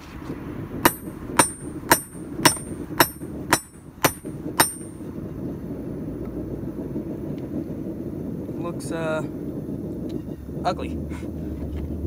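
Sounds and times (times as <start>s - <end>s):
hammer blows ringing on anvil: 0.8s - 5.0s.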